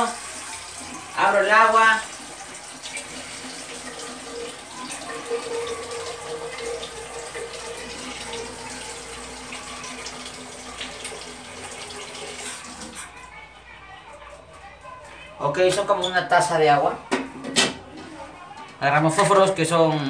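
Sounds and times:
faucet running into pot: 0.0 - 13.1.

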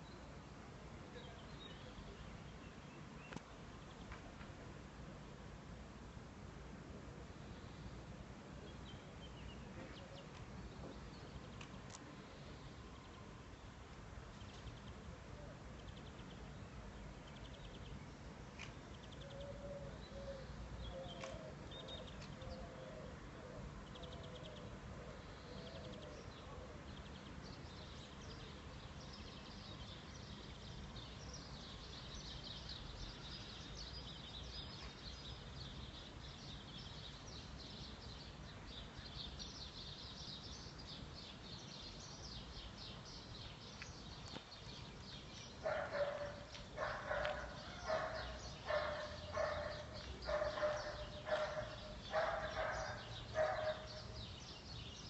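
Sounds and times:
low background noise: 0.0 - 55.0
birds calling: 45.4 - 54.2.

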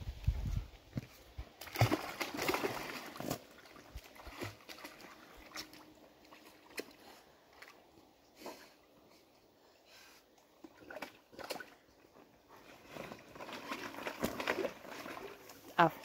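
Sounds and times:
water sloshing: 1.5 - 8.0, 10.5 - 16.0
dog splashing into water: 1.6 - 7.0, 12.7 - 15.5.

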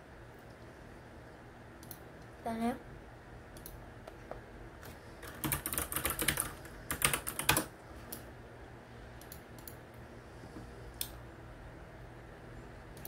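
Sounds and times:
typing on a keyboard: 5.2 - 7.7.

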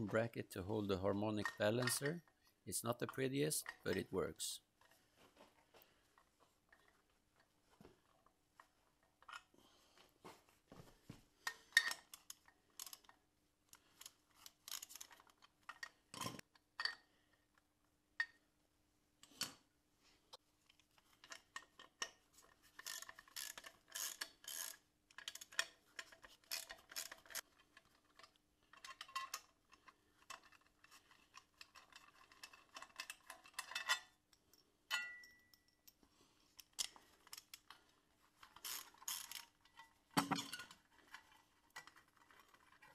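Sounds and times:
metal tools clinking and scraping: 1.2 - 2.3, 25.2 - 36.0, 38.4 - 42.9.

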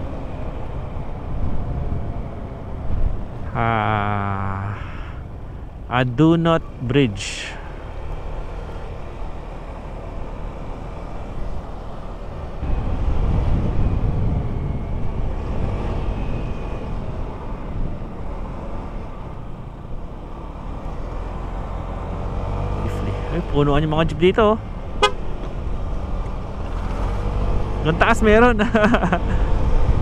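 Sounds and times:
road noise: 0.0 - 30.0.

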